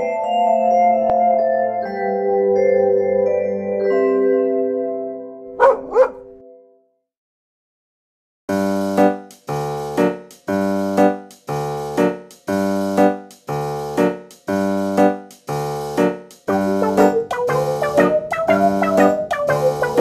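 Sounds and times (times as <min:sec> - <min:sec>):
keyboard chords: 0:16.0 - 0:20.0.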